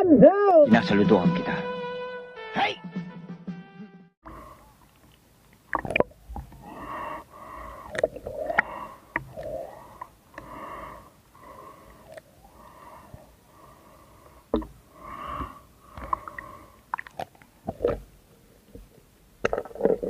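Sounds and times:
breathing through a snorkel: 0:04.2 - 0:04.8, 0:06.5 - 0:17.0.

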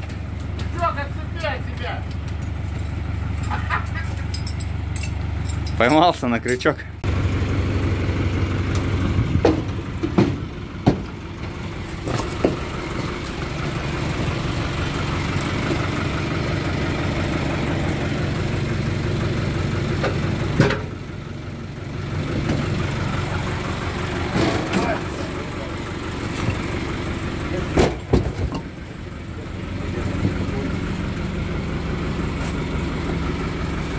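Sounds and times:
truck engine idling: 0:00.0 - 0:33.9
sharp knocks and clinks: 0:02.4 - 0:06.8.

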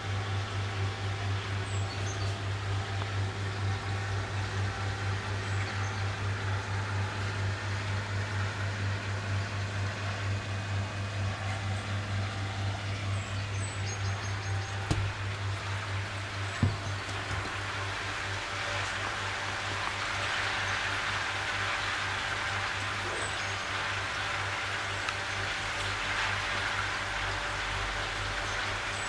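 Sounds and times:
deep mains hum: 0:00.0 - 0:29.0
water running: 0:14.6 - 0:24.2.

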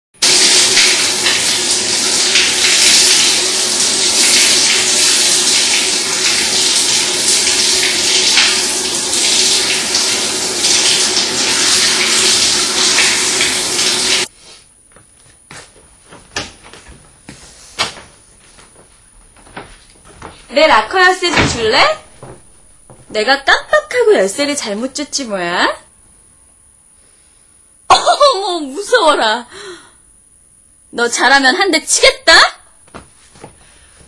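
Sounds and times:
water running from tap: 0:00.2 - 0:14.3, 0:20.6 - 0:25.1.

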